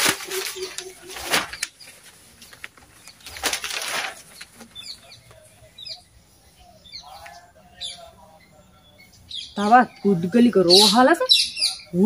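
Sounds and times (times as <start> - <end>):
newspaper rustling: 0.0 - 5.6
small birds chirping: 0.0 - 12.0.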